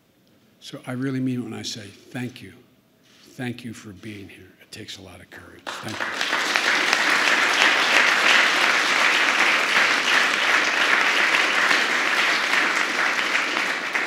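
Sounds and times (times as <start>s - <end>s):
audience applauding: 5.7s - 14.0s.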